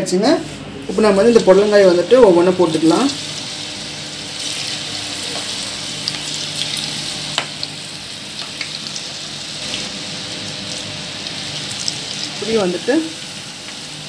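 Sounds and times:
vegetables deep-frying in oil: 0:00.9 - 0:14.0.

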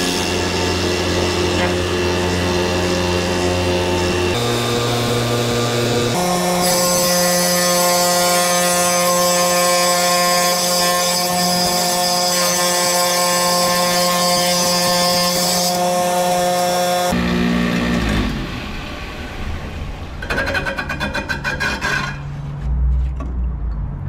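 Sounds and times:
tile saw motor whining: 0:00.0 - 0:22.2
blade grinding through tile: 0:20.2 - 0:22.4.

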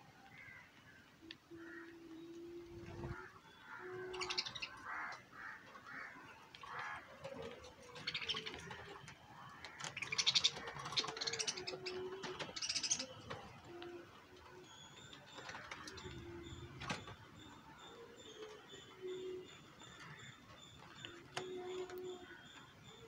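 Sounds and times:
birds chirping: 0:00.0 - 0:23.0
bird trilling: 0:02.7 - 0:05.2, 0:09.7 - 0:13.9.

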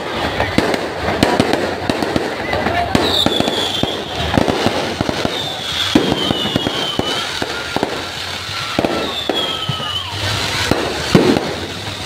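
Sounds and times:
fireworks bangs and crackling: 0:00.0 - 0:12.0
firework whistle sliding down: 0:02.9 - 0:12.0.

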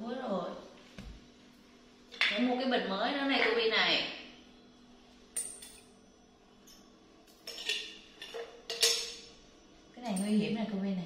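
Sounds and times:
broken vase shards clinking: 0:06.7 - 0:09.3.

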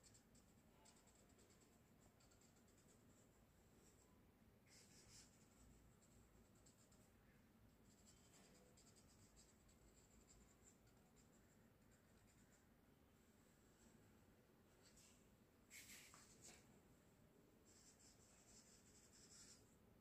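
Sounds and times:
pen scratching on paper: 0:04.7 - 0:07.1, 0:07.8 - 0:12.6, 0:17.7 - 0:19.6.

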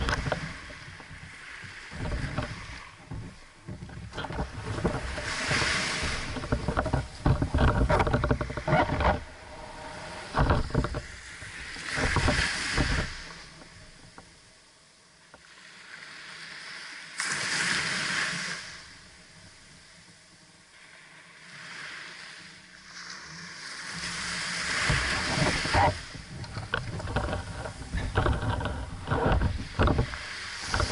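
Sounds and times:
rough buffeting with knocks: 0:00.0 - 0:14.3, 0:24.7 - 0:30.9
small waves breaking on sand: 0:00.0 - 0:30.9.

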